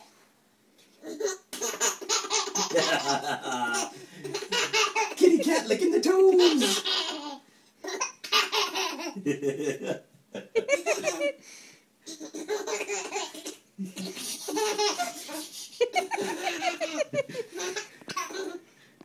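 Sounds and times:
baby belly-laughing: 1.0 - 5.4, 6.3 - 9.2, 12.1 - 18.6.

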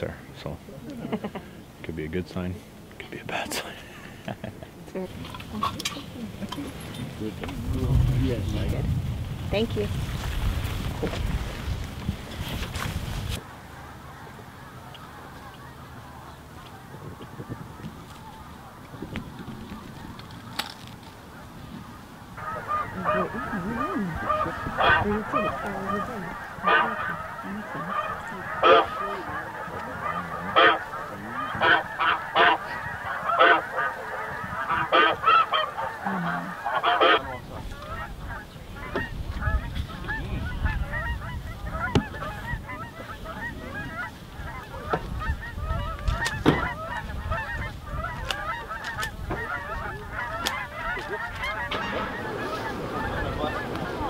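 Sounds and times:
snow geese honking: 3.3 - 8.9, 11.0 - 54.0
low rumble: 5.4 - 14.2.

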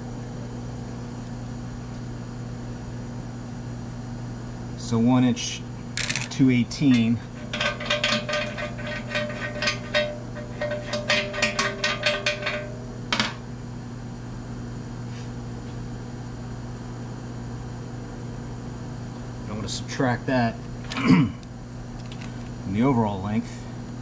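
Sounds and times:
steady low hum: 0.0 - 24.0
metal tools clinking: 6.0 - 13.3.

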